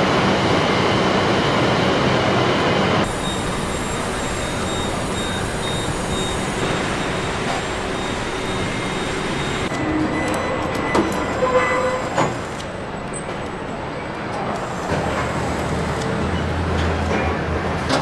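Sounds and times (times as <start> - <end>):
machinery noise: 2.7 - 13.4.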